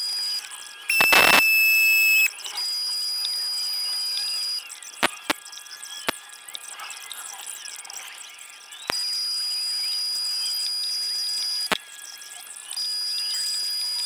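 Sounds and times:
cutting tool screeching: 0:00.9 - 0:02.3
sharp clicks: 0:00.9 - 0:02.3, 0:05.0 - 0:05.4.

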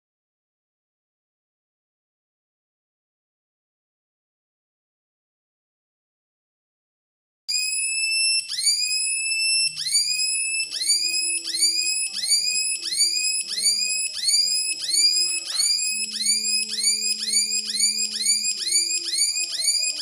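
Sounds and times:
electronic whine chirping upward: 0:07.5 - 0:20.0.

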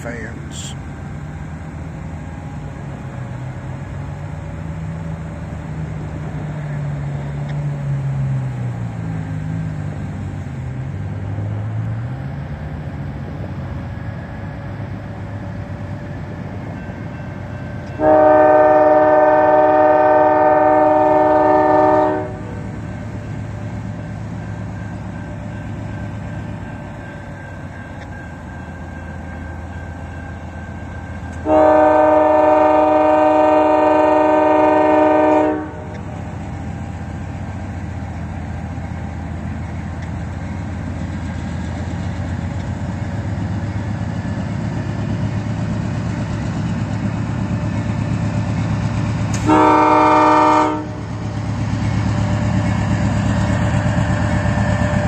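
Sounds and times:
locomotive air horn blast: 0:18.0 - 0:22.6, 0:31.4 - 0:36.0, 0:49.3 - 0:51.1.

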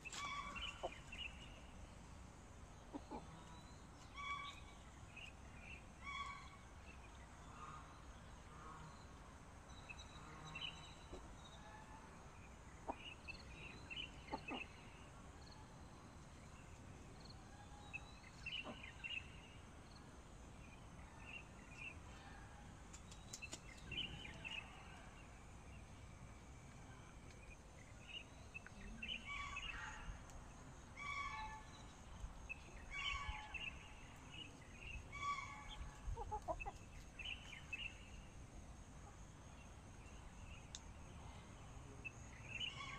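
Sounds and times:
chickens clucking softly: 0:02.8 - 0:03.6, 0:12.8 - 0:15.1, 0:18.4 - 0:19.0, 0:35.3 - 0:37.1.

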